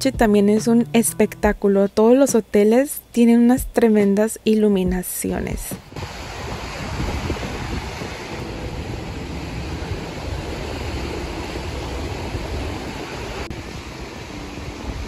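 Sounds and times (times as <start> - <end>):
wind rumbling on microphone: 4.9 - 15.0
surf washing up on beach: 5.8 - 15.0.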